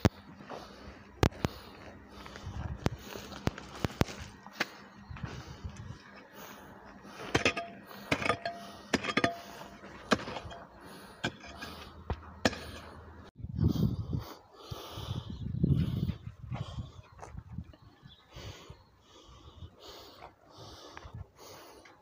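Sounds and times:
footsteps crunching on stones: 0.0 - 6.0.

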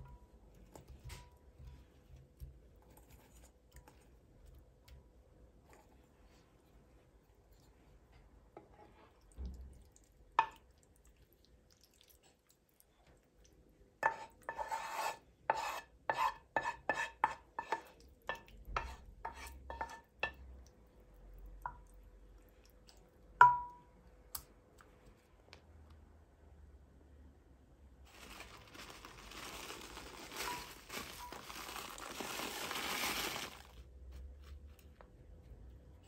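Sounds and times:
utensil scraping pan: 14.0 - 17.9.

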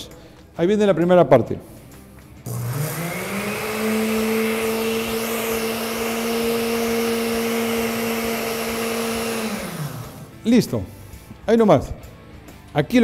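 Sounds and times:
blender motor whine: 2.4 - 10.5.

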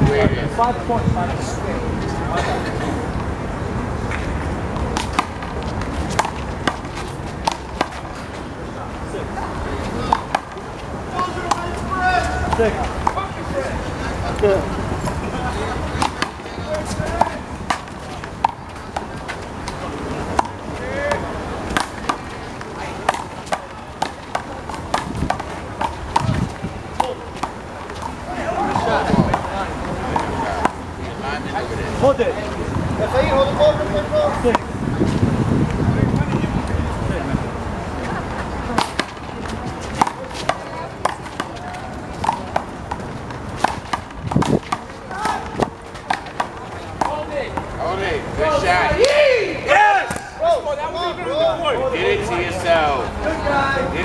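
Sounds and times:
voices: 0.0 - 54.0
ball bouncing off concrete wall: 4.7 - 8.1, 10.0 - 10.6, 15.9 - 29.5, 38.7 - 47.7
handball smacked by hands: 4.8 - 8.1, 16.0 - 16.4, 20.3 - 29.5, 42.2 - 47.7.

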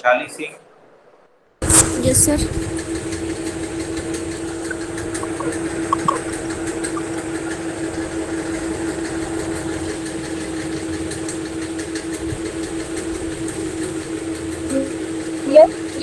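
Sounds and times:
steady machine-like hum: 1.7 - 16.0
faint clicks: 4.6 - 7.6.

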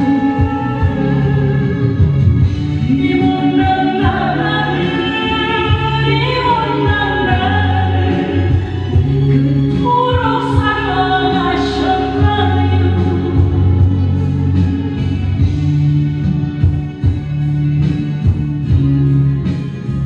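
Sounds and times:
woman singing into microphone: 0.0 - 15.2
backing track with bass line: 0.0 - 20.0.

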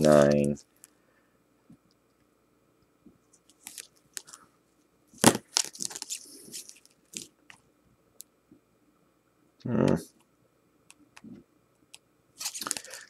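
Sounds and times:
plastic card sleeves rustling: 3.4 - 4.4, 5.2 - 7.3, 12.4 - 13.0.

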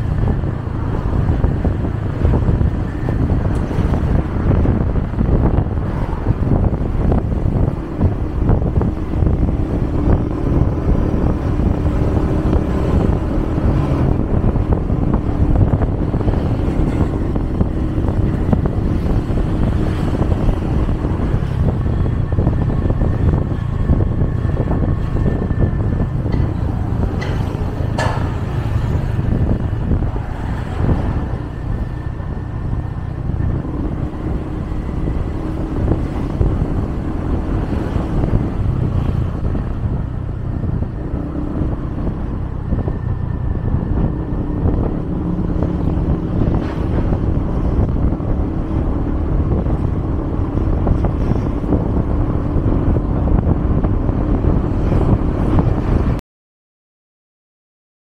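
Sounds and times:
road traffic: 0.0 - 56.2.

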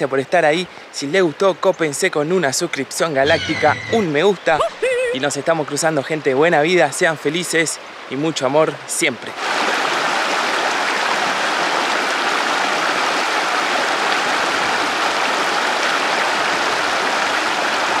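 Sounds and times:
river rushing over rocks: 9.4 - 18.0.

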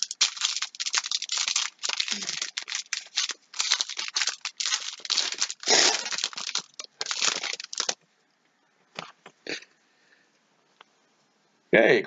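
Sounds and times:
foil wrapper tearing and crinkling: 0.0 - 8.0.

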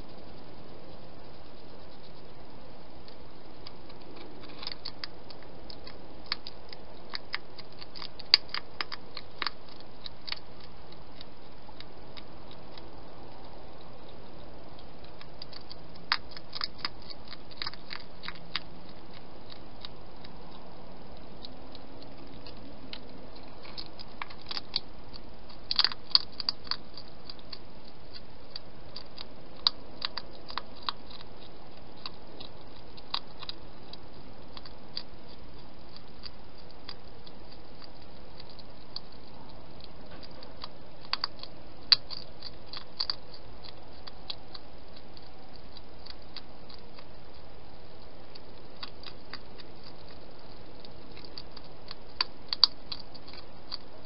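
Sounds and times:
hedgehog crunching food: 0.0 - 54.0
steady background hiss: 0.0 - 54.0.

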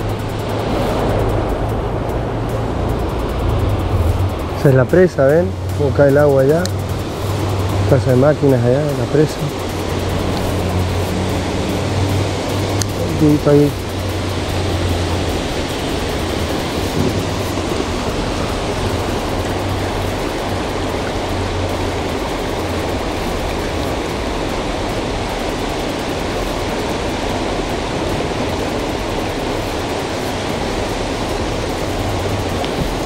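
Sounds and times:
low rumble: 0.0 - 25.8.

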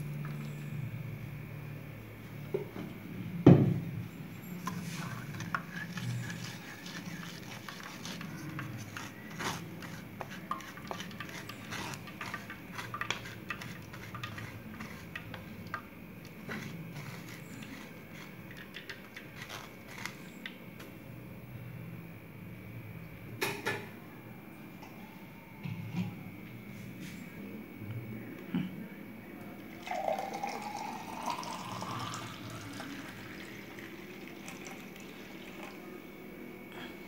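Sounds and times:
spatula scraping mesh strainer: 4.6 - 20.4.

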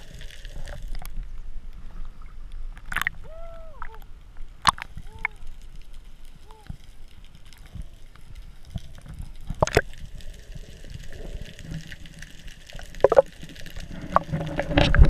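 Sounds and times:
water gurgling underwater: 8.7 - 15.0.

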